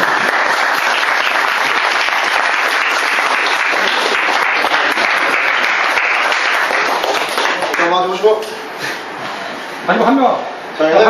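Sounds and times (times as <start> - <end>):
people clapping: 0.0 - 8.5.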